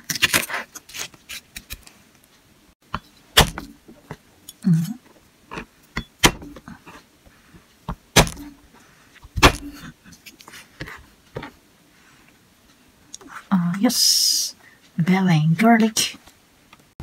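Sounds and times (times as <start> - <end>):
knife striking plastic cutting board: 3.4 - 3.8, 6.2 - 6.6, 7.9 - 8.5, 9.4 - 9.8.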